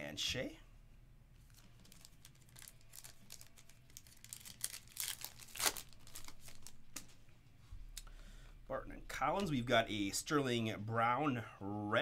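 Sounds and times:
foil wrapper crinkling and tearing: 1.5s - 6.8s.

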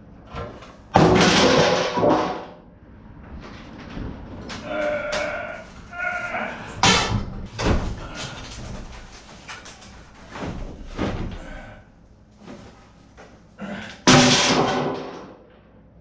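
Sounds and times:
loud crash of boards: 0.9s - 2.6s, 6.8s - 8.0s, 14.0s - 15.4s.

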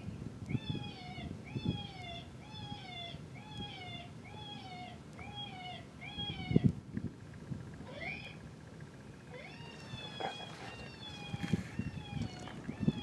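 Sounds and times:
electronic animal distress cry: 7.8s - 8.4s, 9.2s - 13.0s.

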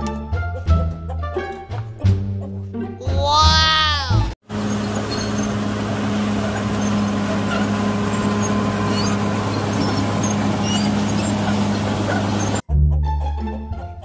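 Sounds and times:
bulldozer diesel engine humming: 3.1s - 12.6s
blade pushing earth: 4.5s - 12.6s.

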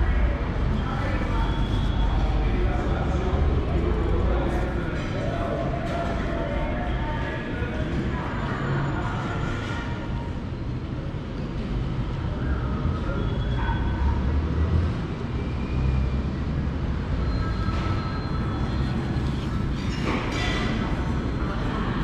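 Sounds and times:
low rumbling background noise: 0.0s - 22.0s.

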